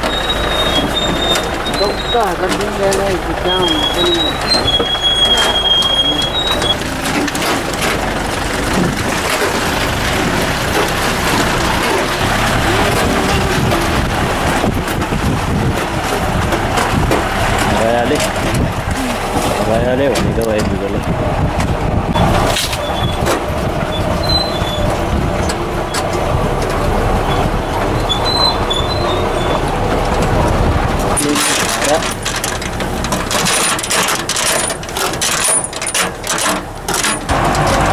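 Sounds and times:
high squeaks: 0:00.0 - 0:15.1, 0:22.5 - 0:26.2, 0:27.2 - 0:30.1
body knocks and rattles: 0:00.0 - 0:37.9
car engine and road noise: 0:00.0 - 0:37.9.

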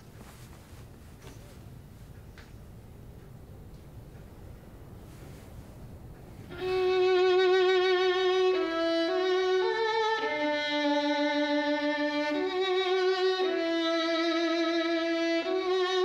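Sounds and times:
faint steady hiss: 0:00.0 - 0:16.0
violin slow melody: 0:06.4 - 0:16.0.

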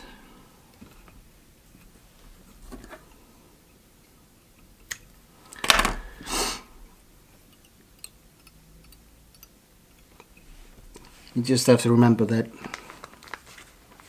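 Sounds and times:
crackling rustles: 0:12.5 - 0:14.0.

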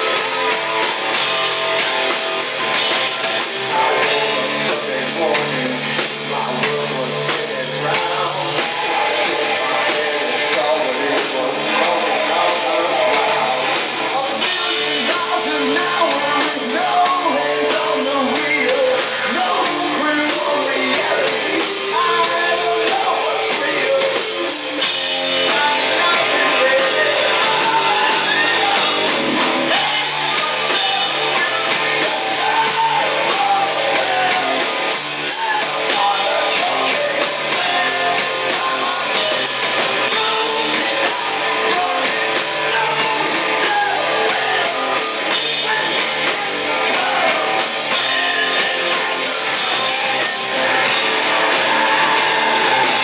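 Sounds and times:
drum kit: 0:00.0 - 0:53.0
electric guitar: 0:00.0 - 0:53.0
person singing into microphone: 0:03.2 - 0:53.0.

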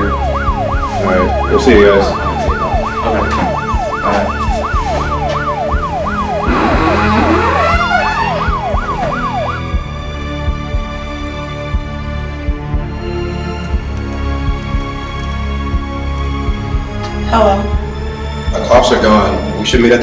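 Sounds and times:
police siren yelping: 0:00.0 - 0:09.9
low background music: 0:00.0 - 0:20.0.

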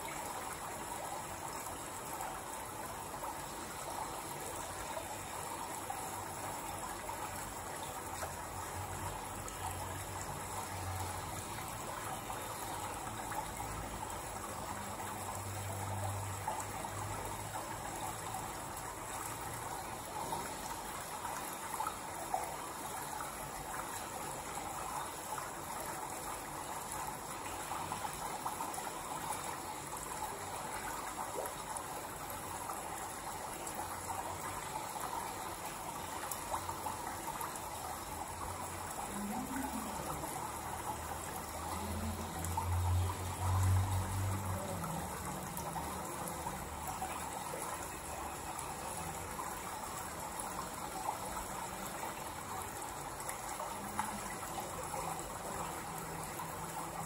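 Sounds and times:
flowing water rushing: 0:00.0 - 0:57.0.

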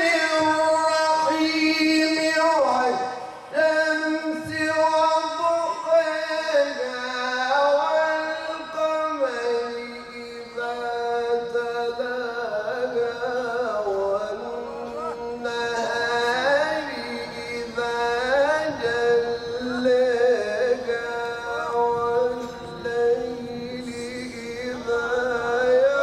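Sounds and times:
man reciting in melodic sung style: 0:00.0 - 0:26.0.

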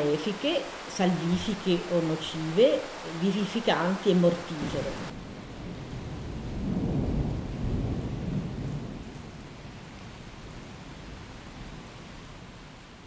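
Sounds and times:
steady rain: 0:00.0 - 0:13.0
thunder rumbling: 0:04.0 - 0:09.7.

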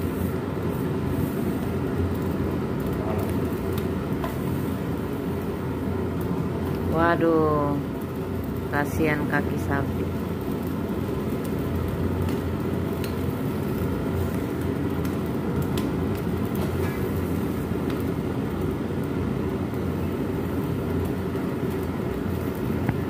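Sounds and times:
gas burner roaring: 0:00.0 - 0:23.0.

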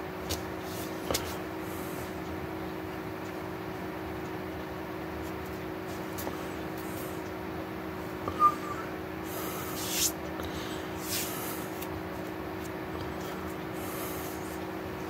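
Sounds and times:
electrical hum: 0:00.0 - 0:15.0
hissing breath puffs: 0:08.6 - 0:11.8, 0:13.1 - 0:14.6.

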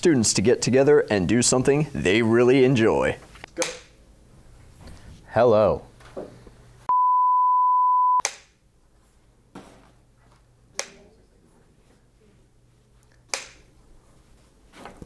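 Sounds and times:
faint low room hum: 0:00.0 - 0:06.9, 0:08.3 - 0:15.0
steady electronic beep: 0:06.9 - 0:08.2
sharp snap-like clicks: 0:08.2 - 0:08.6, 0:13.3 - 0:13.6.

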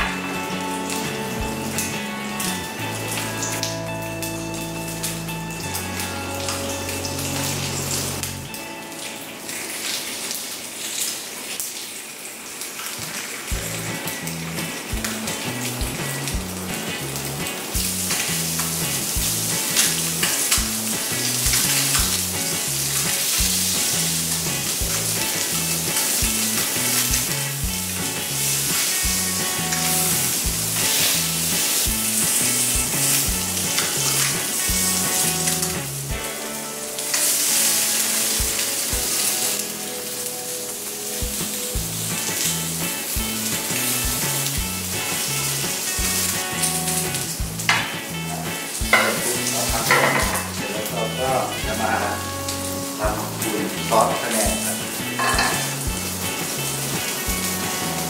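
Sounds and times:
background music with steady beat: 0:00.0 - 0:09.5, 0:13.5 - 0:40.0, 0:41.1 - 0:58.0
fish fillets sizzling in a pan: 0:12.7 - 0:58.0.

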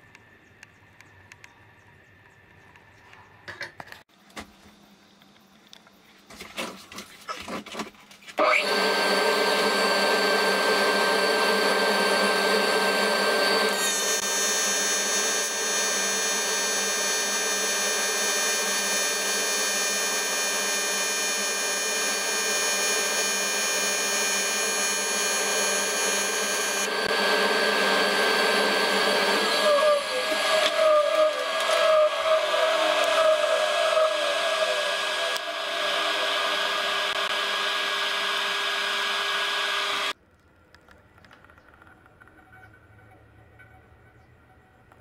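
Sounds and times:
welding arc buzzing: 0:08.5 - 0:40.2.

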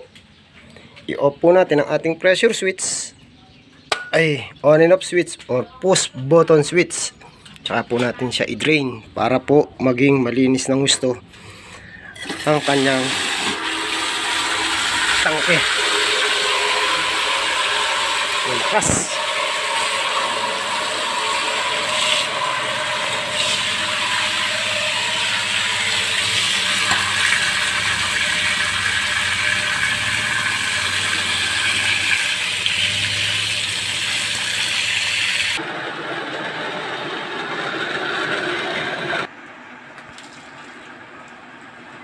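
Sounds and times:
water rushing from drain: 0:12.4 - 0:35.6.

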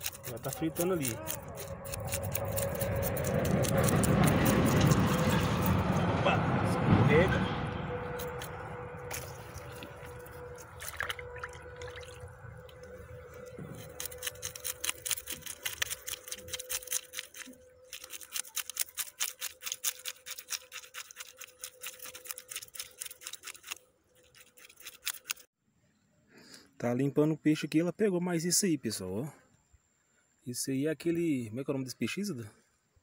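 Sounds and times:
knife scraping fish scales: 0:00.0 - 0:05.8, 0:13.2 - 0:25.5.

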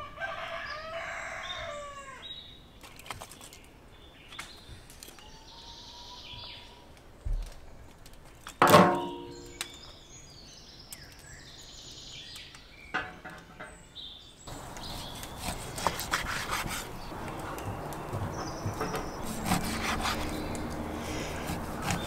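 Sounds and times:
birds chirping: 0:00.4 - 0:22.0
knife slicing meat on wooden board: 0:14.8 - 0:22.0.

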